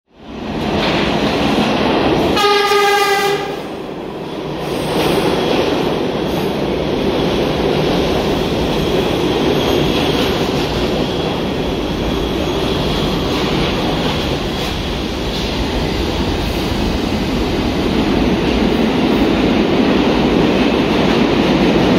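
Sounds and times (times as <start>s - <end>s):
subway train rumbling: 0.1s - 21.9s
train horn blast: 2.4s - 3.7s.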